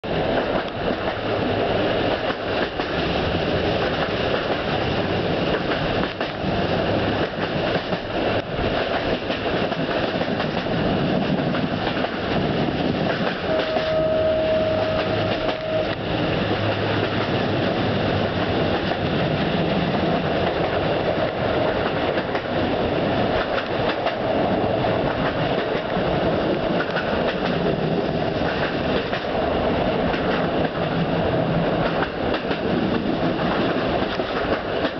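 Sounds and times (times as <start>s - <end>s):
train running on track: 0.0s - 34.9s
wheels clicking over rail joints: 0.2s - 14.0s, 14.8s - 34.9s
steady tone: 13.4s - 17.2s.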